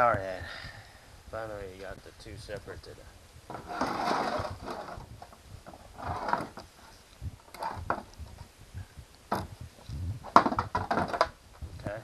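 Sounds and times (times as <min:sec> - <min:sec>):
metal scrapes and clunks: 0:03.5 - 0:08.4.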